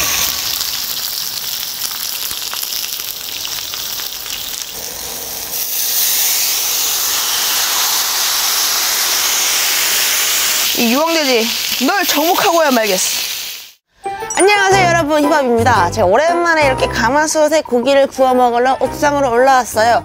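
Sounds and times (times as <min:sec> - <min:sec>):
pork sizzling and crackling: 0:00.0 - 0:13.8.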